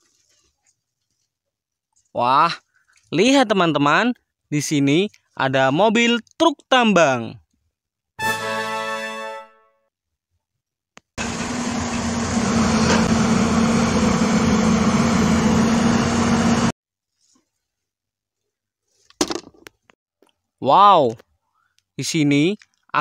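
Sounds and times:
diesel truck engine running: 11.2 - 16.7.

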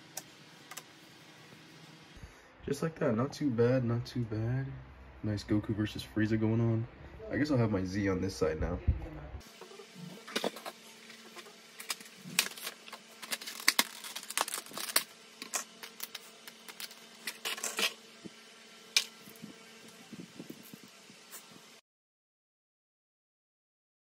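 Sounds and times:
faint steady hum: 0.0 - 21.8.

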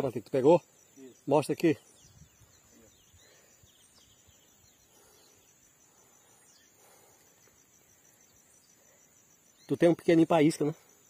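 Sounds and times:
insects trilling: 0.0 - 11.0.

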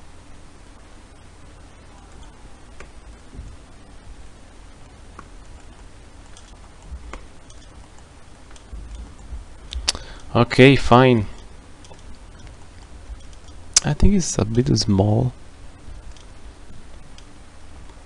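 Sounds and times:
low hum and hiss: 0.0 - 18.0
computer mouse clicks: 2.1 - 3.2, 5.1 - 9.1, 11.4 - 13.6.

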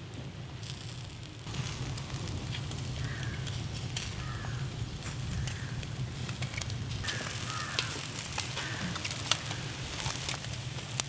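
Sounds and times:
fire crackling and popping: 0.0 - 11.0
low fire rumble: 0.0 - 11.0.

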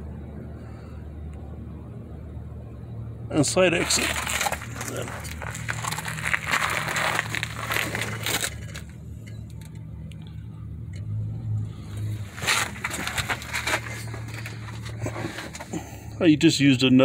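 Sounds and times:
steady low hum: 0.0 - 17.0
scraping and rustling on pavement: 3.5 - 9.7, 11.6 - 16.1.

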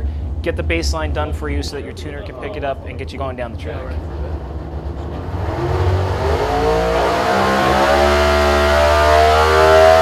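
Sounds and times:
engine revving under load: 3.7 - 10.0.

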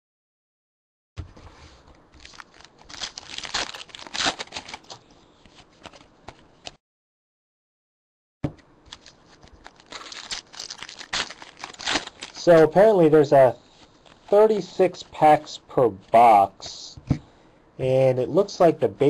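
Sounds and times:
plastic wrapper crinkling: 2.2 - 6.4, 8.9 - 12.8.

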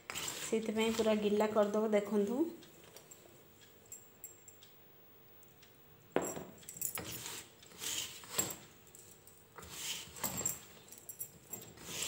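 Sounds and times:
hands scraping gritty dough: 0.0 - 1.1, 7.0 - 8.4, 9.6 - 10.2, 11.8 - 12.0.

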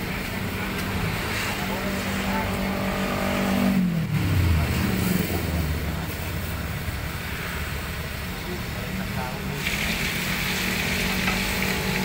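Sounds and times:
vehicle engine passing: 0.5 - 7.9.

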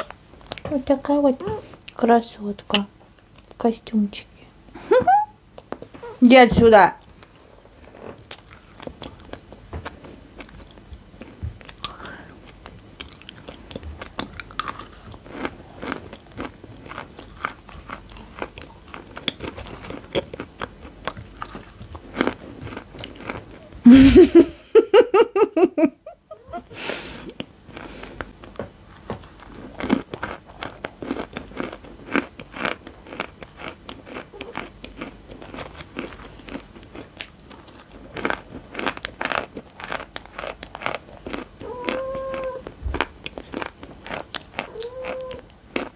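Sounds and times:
crunching and chewing chalk: 7.0 - 23.8, 27.2 - 45.9.

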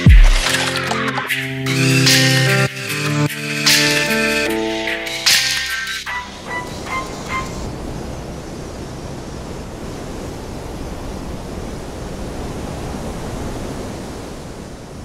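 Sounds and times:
steady rushing noise: 3.4 - 15.0.

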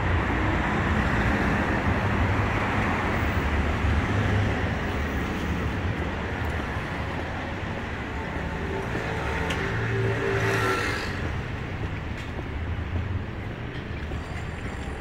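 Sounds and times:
traffic rumble: 0.0 - 15.0.

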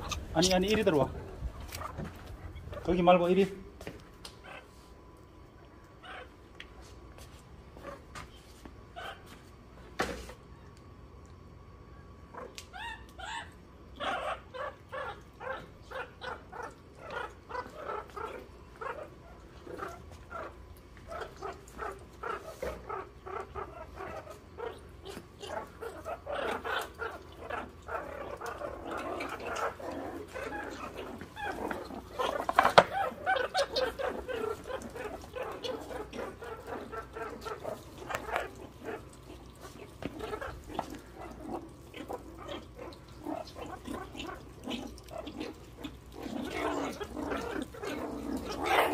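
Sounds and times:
meerkats giving short calls: 0.0 - 2.9.

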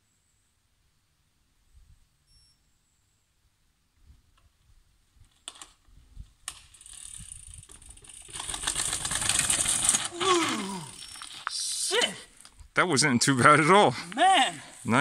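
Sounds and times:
bike rattling: 5.2 - 12.6.

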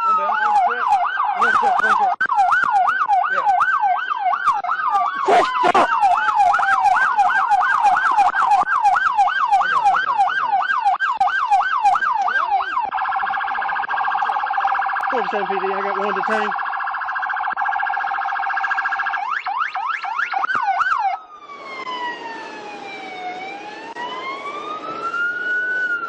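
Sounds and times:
police siren yelping: 0.0 - 26.0
slower falling siren tone: 16.2 - 26.0.

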